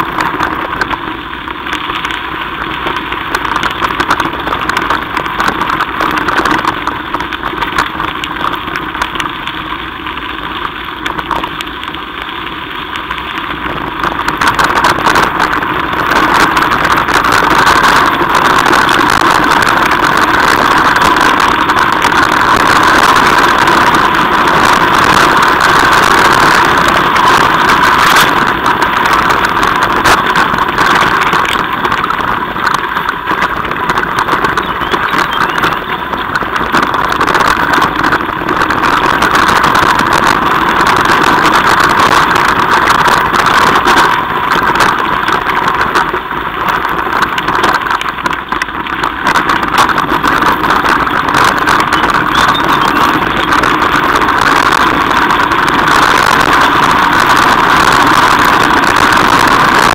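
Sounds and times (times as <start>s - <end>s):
bike tyres crunching gravel: 0.0s - 59.9s
bike frame rattling: 13.5s - 59.8s.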